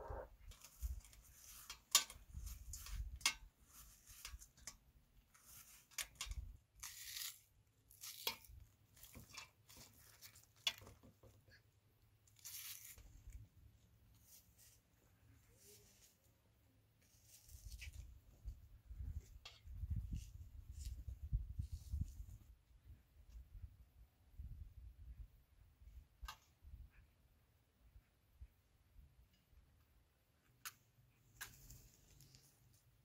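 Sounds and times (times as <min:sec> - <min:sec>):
onion layers tearing: 0:06.7 - 0:09.2, 0:12.4 - 0:13.0.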